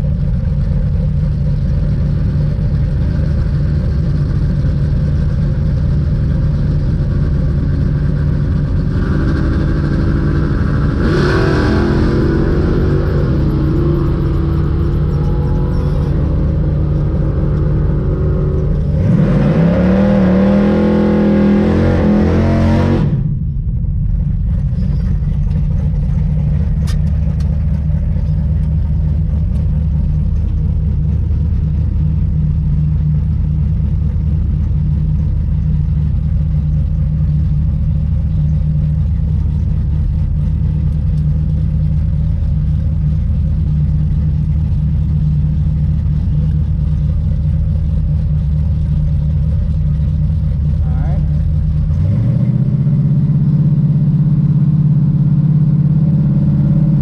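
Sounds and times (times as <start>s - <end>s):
car engine idling: 0.0s - 57.0s
loud engine revving: 8.3s - 23.3s, 50.6s - 57.0s.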